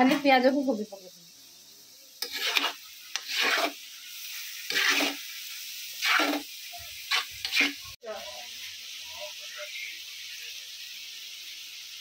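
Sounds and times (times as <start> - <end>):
vegetables sizzling: 0.0 - 12.0
metal spatula scraping a wok: 2.2 - 8.0.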